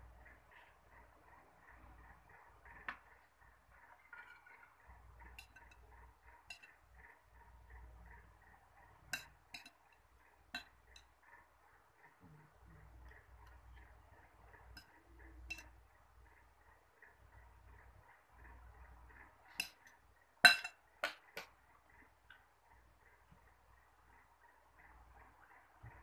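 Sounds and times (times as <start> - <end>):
faint fast ticking: 0.0 - 26.0
spoon clinking on glass bowl: 20.4 - 20.8.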